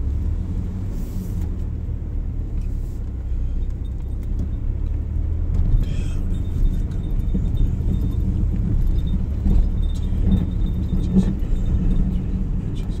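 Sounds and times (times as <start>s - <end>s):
pickup engine rumbling: 0.0s - 13.0s
light clinks and rattles: 5.6s - 13.0s.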